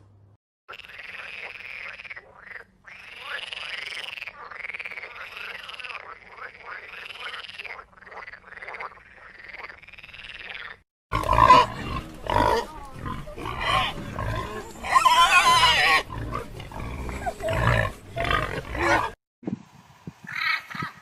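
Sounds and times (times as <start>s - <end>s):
frog croaking: 0.7s - 12.4s.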